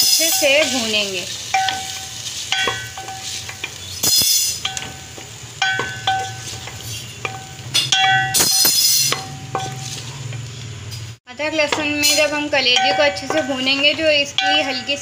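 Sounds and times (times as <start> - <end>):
pot clinking and ringing: 0.0 - 10.1, 11.9 - 15.0
sizzling: 0.0 - 15.0
spoon scraping metal pot: 6.0 - 10.4.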